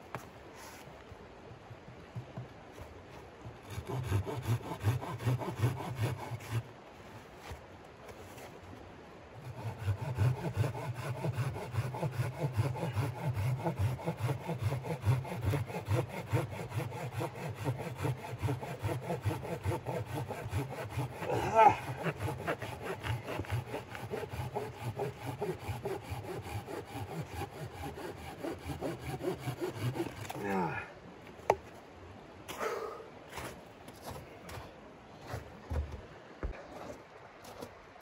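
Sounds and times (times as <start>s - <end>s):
hand saw cutting log: 3.6s - 6.7s, 9.4s - 30.7s.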